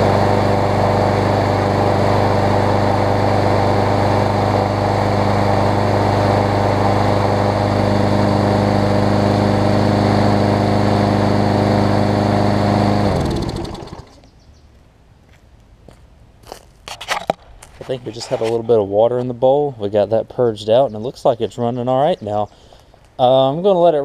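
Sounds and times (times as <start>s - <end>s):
lawn mower engine running: 0.0s - 14.2s.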